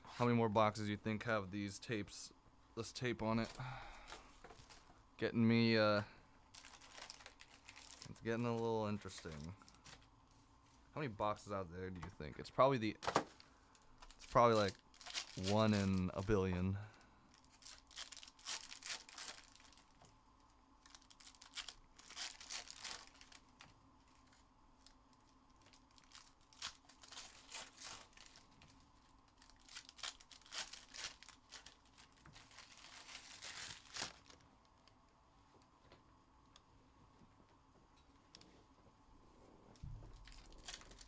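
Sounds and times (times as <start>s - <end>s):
wrappers tearing and crinkling: 6.5s - 10.0s, 14.0s - 16.4s, 17.3s - 20.0s, 20.8s - 34.9s, 40.1s - 41.0s.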